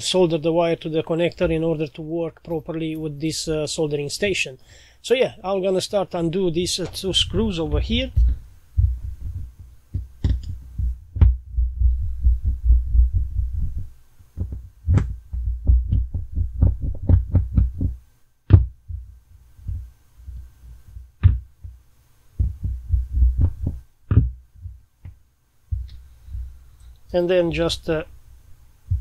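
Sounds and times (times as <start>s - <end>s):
thumps and rubbing on bench: 6.8s - 21.8s, 22.4s - 26.6s.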